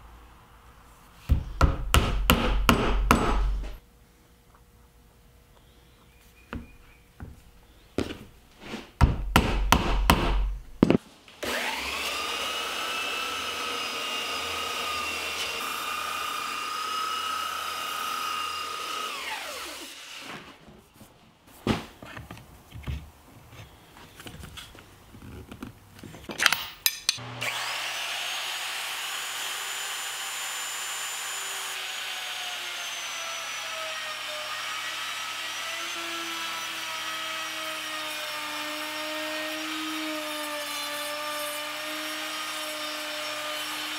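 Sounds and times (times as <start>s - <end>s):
router whining: 11.4s - 20.2s, 27.2s - 43.9s.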